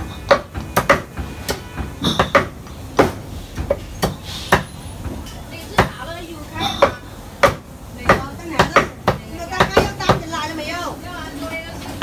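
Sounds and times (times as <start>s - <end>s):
meat cleaver chopping on wood: 0.2s - 4.7s, 6.7s - 10.2s.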